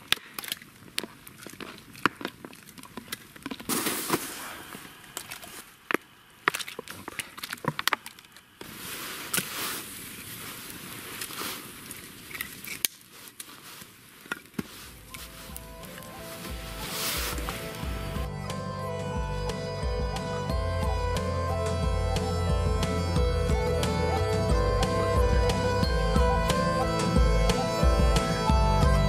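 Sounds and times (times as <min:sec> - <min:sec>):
campfire crackling: 0:00.0 - 0:29.0
sharp pops: 0:03.0 - 0:09.8
soft hiss: 0:03.7 - 0:18.3.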